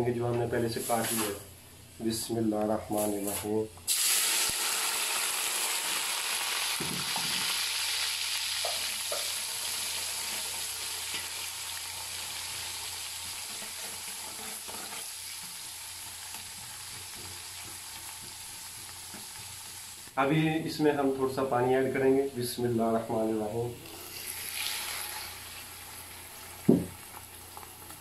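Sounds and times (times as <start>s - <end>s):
onions sizzling in hot oil: 3.9s - 20.2s, 24.0s - 28.0s.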